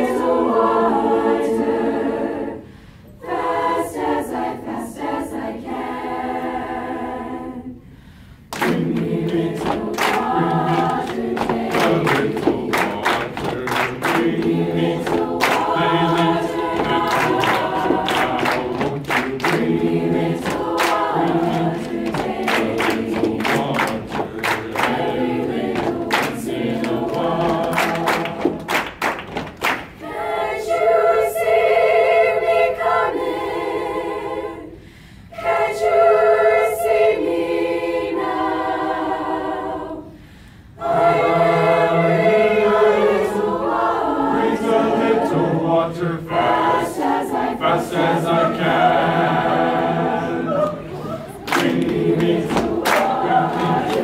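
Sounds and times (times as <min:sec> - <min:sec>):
choir singing a cappella: 0:00.0 - 0:54.0
hand claps: 0:08.5 - 0:30.0, 0:50.6 - 0:54.0.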